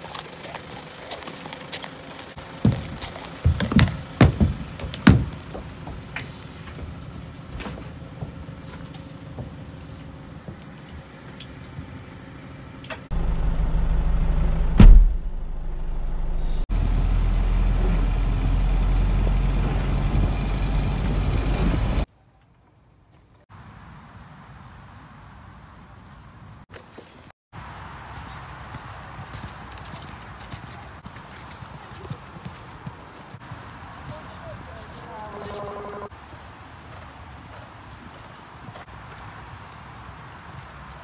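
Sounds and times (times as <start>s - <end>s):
horse hooves clomping up a ramp: 0.0s - 11.2s, 28.3s - 36.1s
lorry engine rumbling: 0.0s - 22.1s, 34.4s - 36.1s
loud knock: 14.8s - 15.3s.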